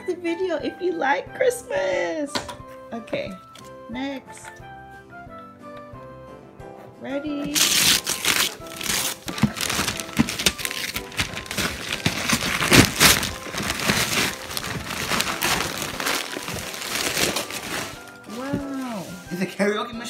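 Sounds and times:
wrapping paper tearing and crinkling: 7.5 - 19.5.

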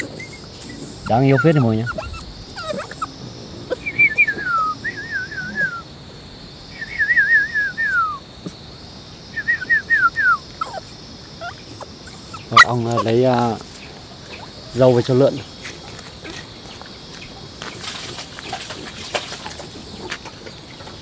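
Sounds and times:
dog whimpering: 0.0 - 5.8, 10.2 - 13.1.

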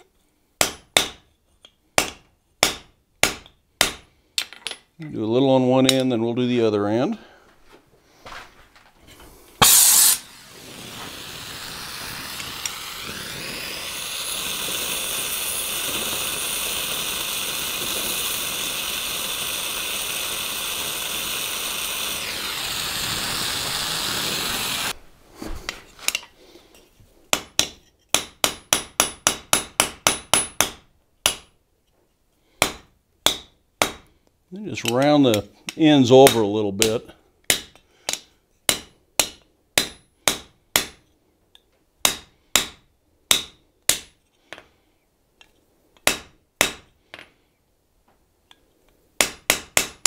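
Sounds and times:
torch flame hissing: 9.3 - 25.6
hammer striking hot metal: 9.6 - 18.8, 42.0 - 44.1.

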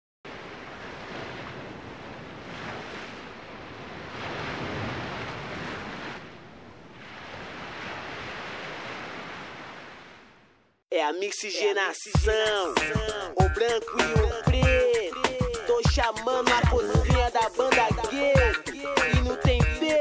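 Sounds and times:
ocean surf breaking: 0.3 - 10.6.

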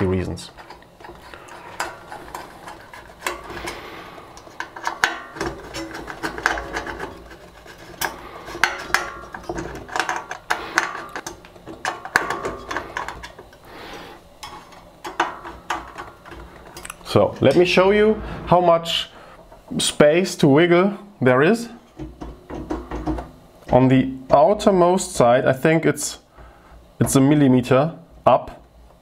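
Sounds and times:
metallic clicks and rattles: 0.5 - 13.7, 14.4 - 17.7.

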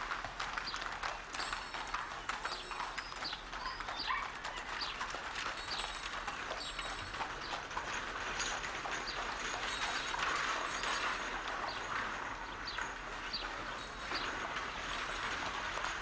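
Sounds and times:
horse hooves clip-clopping on street: 0.0 - 16.0
small birds chirping: 2.5 - 5.1.

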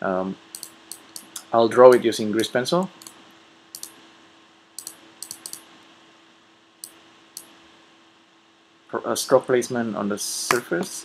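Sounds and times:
faint steady hum: 0.0 - 11.0
mouse and keyboard clicks: 0.6 - 1.5, 3.8 - 4.0, 4.8 - 5.6.

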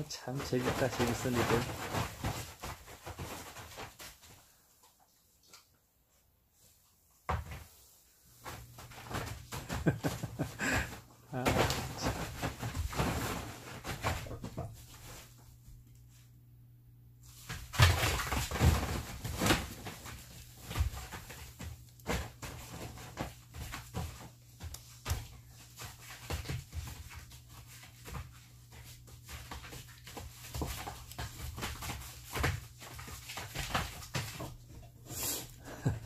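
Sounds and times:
dogs scuffling: 0.1 - 5.6, 6.6 - 16.3, 17.2 - 36.0
tarp rustling: 0.3 - 4.2, 11.4 - 15.4, 17.3 - 21.4.

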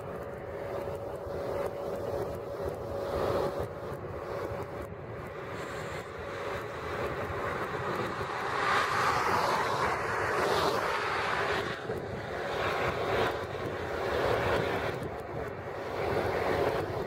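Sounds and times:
traffic noise: 0.0 - 17.0
car passing by: 5.4 - 15.1.

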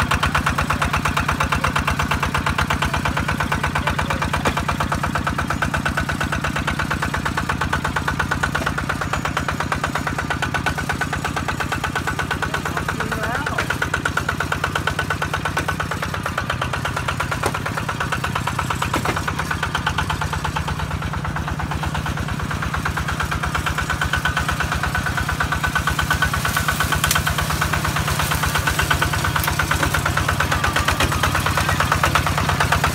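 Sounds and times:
combine harvester engine running: 0.0 - 32.9.

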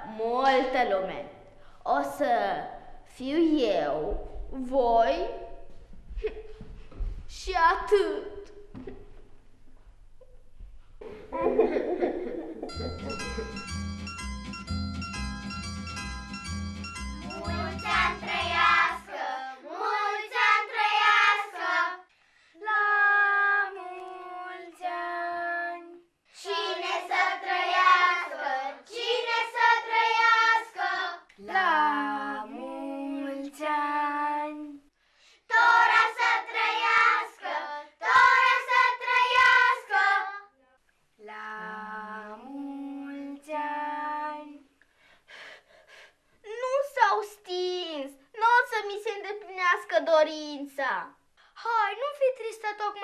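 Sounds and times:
children singing: 17.3 - 22.0, 22.6 - 34.2, 35.5 - 40.5.

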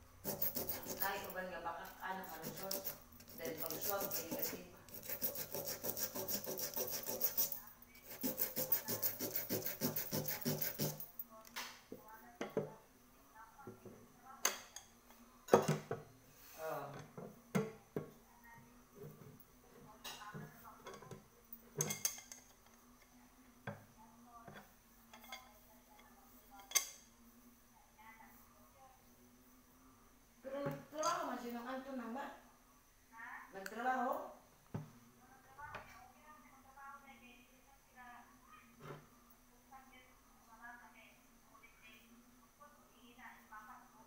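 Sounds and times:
sandpaper rubbing on metal: 0.2 - 1.3, 2.1 - 11.1.

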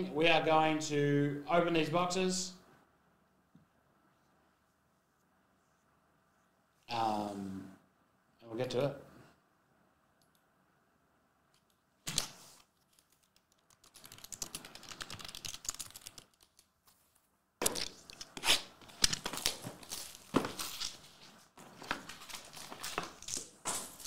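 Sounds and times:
plastic wrap tearing and crinkling: 17.8 - 21.2.

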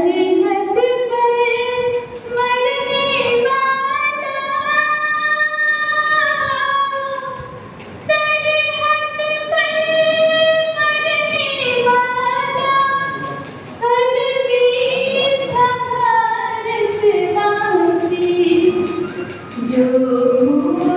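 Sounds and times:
young person singing: 13.8 - 20.9.

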